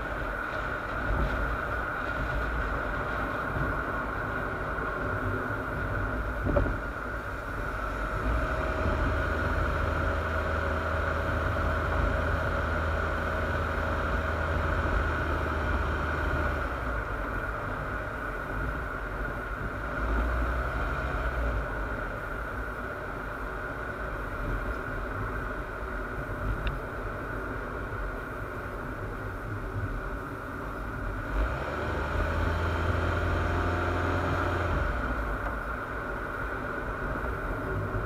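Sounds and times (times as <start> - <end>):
muffled car road rumble: 0.0 - 38.0.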